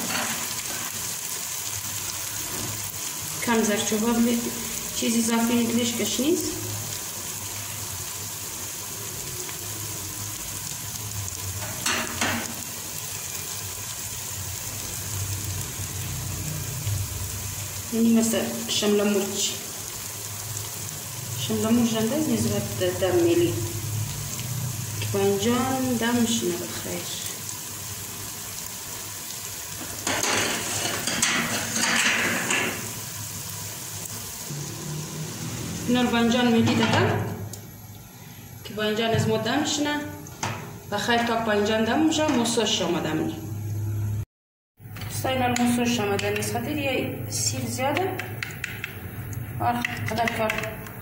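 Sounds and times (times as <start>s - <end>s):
sauce sizzling in a pot: 0.0s - 44.1s
scrape in pot: 30.4s - 32.6s.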